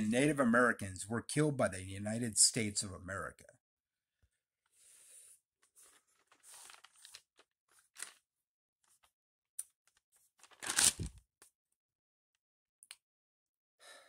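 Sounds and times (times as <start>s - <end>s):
crinkling rustles: 5.7s - 8.2s, 10.4s - 11.2s.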